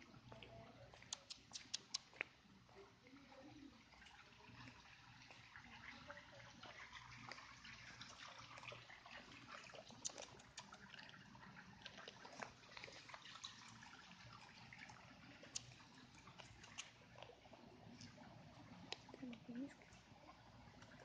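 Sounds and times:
sharp clicks: 1.0s - 2.1s.

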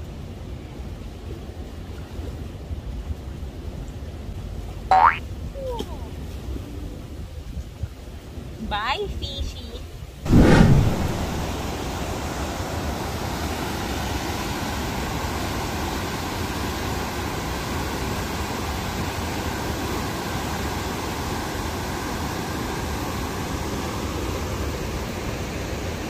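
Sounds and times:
water rushing through dam gates: 10.9s - 26.0s.

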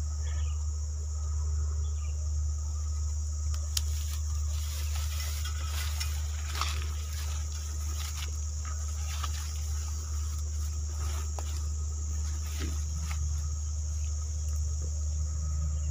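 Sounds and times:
high insect drone: 0.0s - 15.9s
steady low hum: 0.0s - 15.9s
rustling and snapping twigs: 3.4s - 15.0s.

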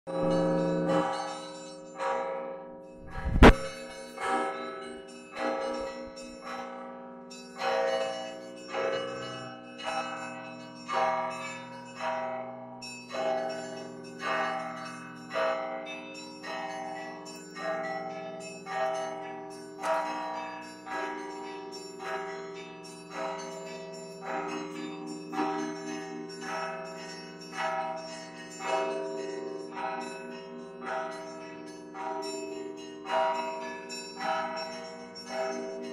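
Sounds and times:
church bells ringing: 0.1s - 2.9s, 3.5s - 35.9s
sharp knock: 3.0s - 3.8s.

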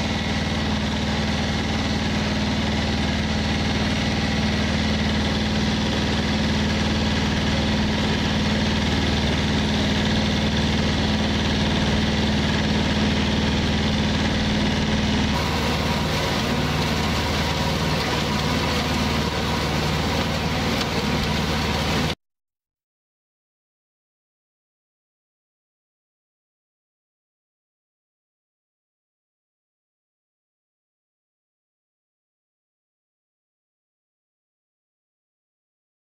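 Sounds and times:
tractor engine mowing grass: 0.0s - 22.2s.

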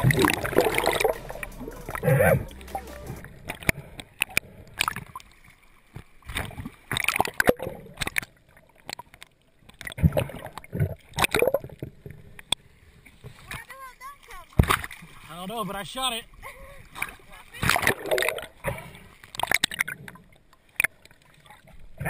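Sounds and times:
water splashes: 0.0s - 3.8s, 4.7s - 12.0s, 13.1s - 22.0s
water sloshing and gurgling: 3.2s - 13.6s, 16.4s - 22.0s.

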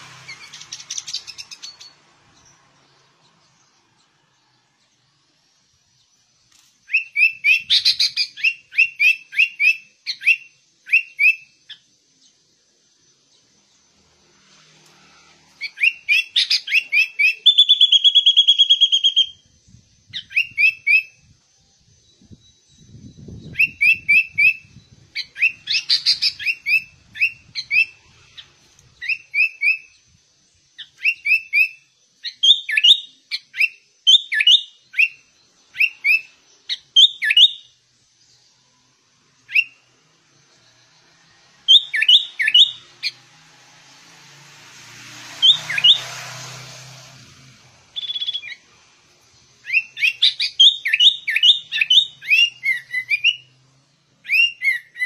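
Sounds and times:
bird chirping song: 0.0s - 55.0s
rush of hiss: 43.2s - 48.0s.

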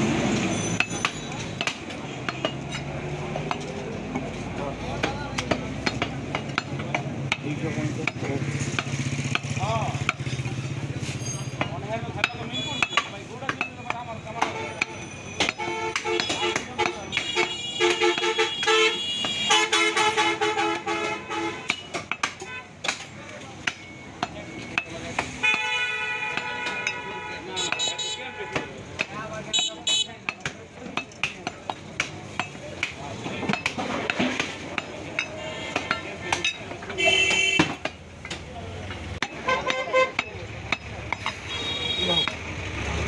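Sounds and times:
cleaver chopping on wooden block: 0.8s - 4.2s, 5.0s - 10.4s, 21.6s - 25.7s, 27.6s - 41.4s
vehicle horn honking: 14.4s - 22.7s, 25.4s - 28.8s, 35.3s - 36.0s, 36.9s - 37.8s, 39.3s - 40.2s, 41.2s - 42.4s.

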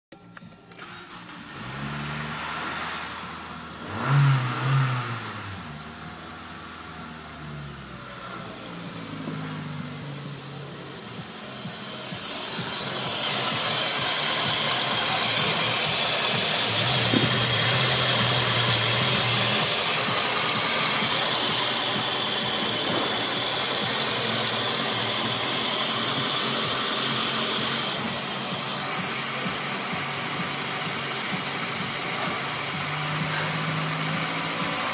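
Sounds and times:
car engine idling: 0.1s - 34.9s
loud even hiss: 7.4s - 34.9s.

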